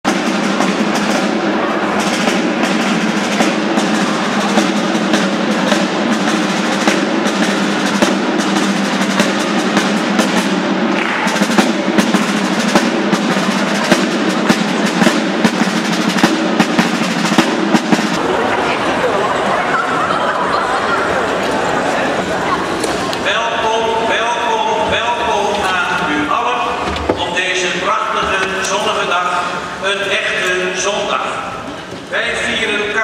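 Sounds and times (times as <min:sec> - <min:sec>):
fast snare drum rhythm: 0:00.0 - 0:18.2
steady held notes: 0:00.1 - 0:33.0.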